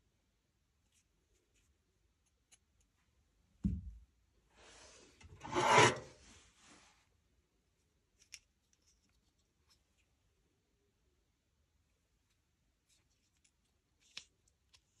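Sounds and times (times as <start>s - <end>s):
scraping rubbing sound: 4.6s - 6.9s.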